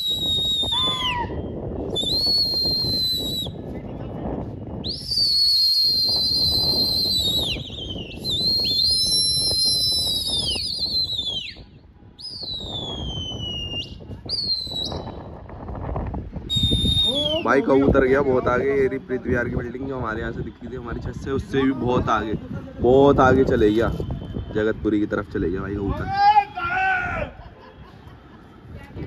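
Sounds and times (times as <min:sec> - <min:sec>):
shrill whistles: 0:00.0 - 0:03.6, 0:04.8 - 0:15.3, 0:16.4 - 0:17.7.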